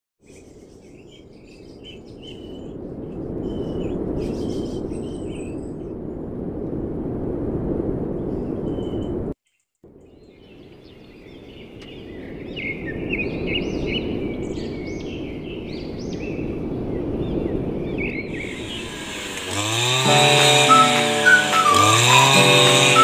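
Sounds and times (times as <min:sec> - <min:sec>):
birds chirping: 0:00.2 - 0:06.2, 0:08.2 - 0:23.0
low rumble: 0:01.3 - 0:09.4
short high calls: 0:20.1 - 0:23.0.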